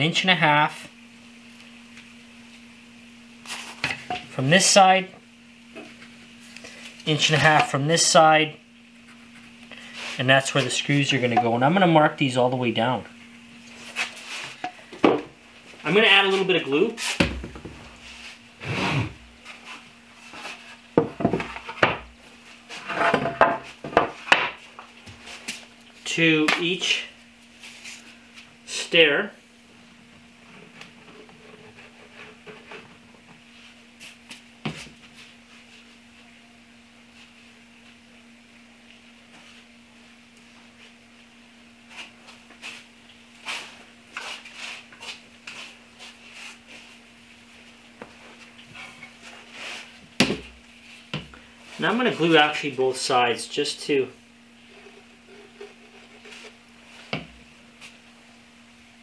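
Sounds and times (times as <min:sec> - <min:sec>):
steady low hum: 0:00.0 - 0:59.0
rustles and scuffs of hand work: 0:09.0 - 0:10.8, 0:13.6 - 0:14.6, 0:15.6 - 0:17.2, 0:17.9 - 0:20.8, 0:23.6 - 0:26.0, 0:27.2 - 0:28.5, 0:33.4 - 0:36.2, 0:40.4 - 0:52.6, 0:54.6 - 0:58.1.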